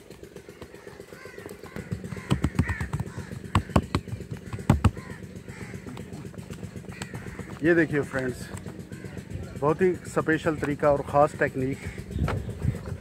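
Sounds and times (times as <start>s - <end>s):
crows cawing: 0.2s - 12.8s
dough patted by hand: 1.6s - 5.0s.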